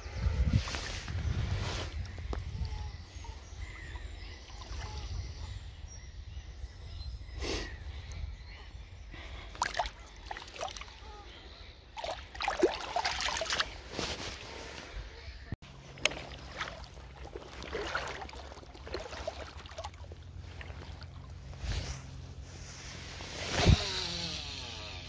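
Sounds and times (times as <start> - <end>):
shallow water sloshing: 9.5 - 11.0, 12.0 - 14.9, 15.6 - 23.1
sharp splashes: 9.6 - 11.0, 12.0 - 13.8, 15.7 - 21.9.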